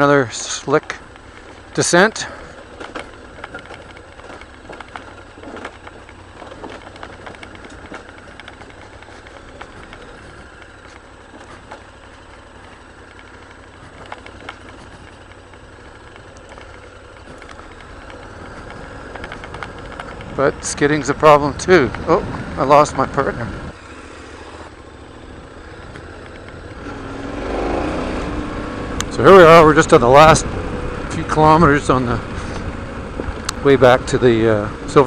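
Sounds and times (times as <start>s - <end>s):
motorcycle engine idling: 0.0s - 35.0s
scattered clicks and knocks: 2.6s - 23.3s.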